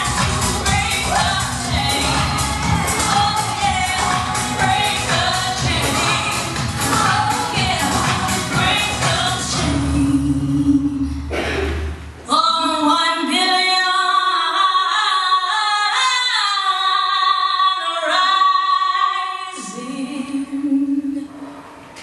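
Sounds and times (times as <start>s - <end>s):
woman singing: 0.0s - 11.2s, 12.3s - 21.3s
backing music with bass line: 0.0s - 12.1s.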